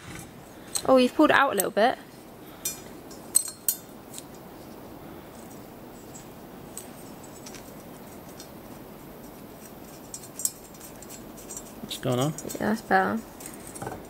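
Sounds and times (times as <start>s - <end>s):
steady background noise: 0.0s - 14.0s
metal clicks and scrapes: 9.2s - 14.0s.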